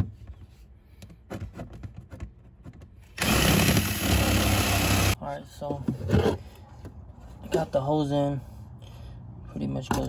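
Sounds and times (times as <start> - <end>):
small air compressor running: 3.2 - 5.2.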